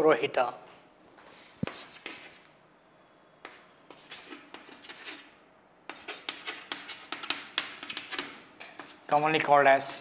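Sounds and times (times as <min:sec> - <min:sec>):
chalk scratching on chalkboard: 0:01.6 - 0:02.5, 0:03.4 - 0:05.3, 0:05.9 - 0:09.3.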